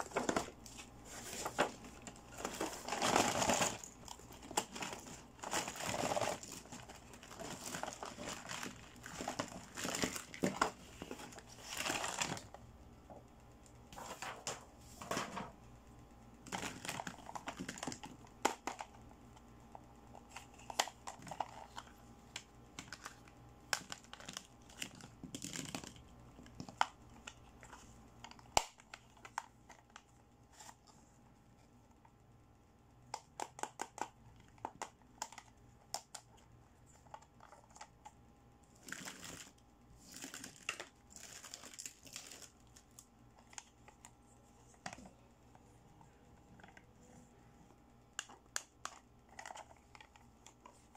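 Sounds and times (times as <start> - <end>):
plastic packaging crinkling: 0.0 - 12.5, 16.5 - 18.8, 22.8 - 26.8, 38.8 - 44.1.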